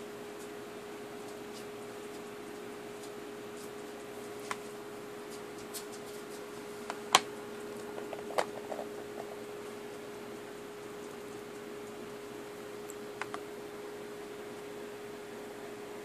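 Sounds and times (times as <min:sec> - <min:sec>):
faint hum and hiss: 0:00.0 - 0:16.0.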